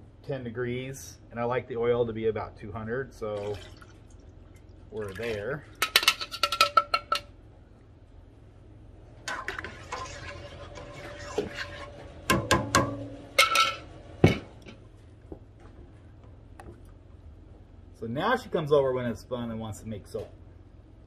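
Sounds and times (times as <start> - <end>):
metal tool scraping a steel pot: 9.3 - 13.8.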